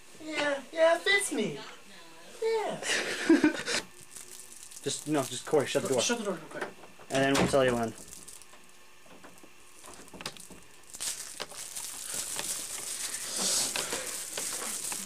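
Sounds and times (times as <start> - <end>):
rustling and clicks of handling: 4.0 - 15.0.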